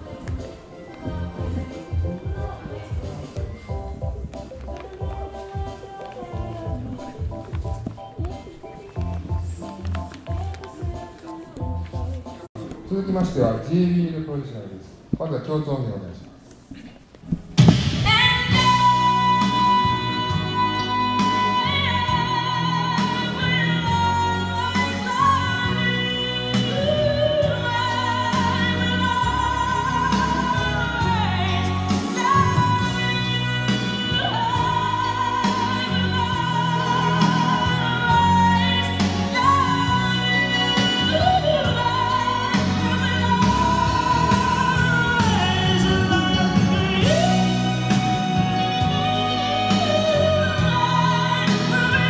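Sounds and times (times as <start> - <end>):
steady bass line: 17.8 - 52.0.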